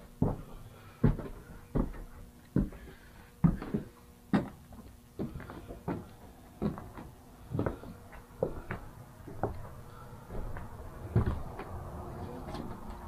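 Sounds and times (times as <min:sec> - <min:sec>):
footsteps on wooden floorboards: 0:00.0 - 0:13.0.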